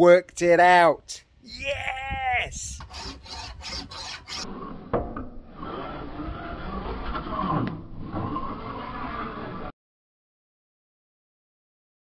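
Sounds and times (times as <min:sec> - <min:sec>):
file rasping on metal: 0:02.8 - 0:04.9, 0:05.5 - 0:09.7.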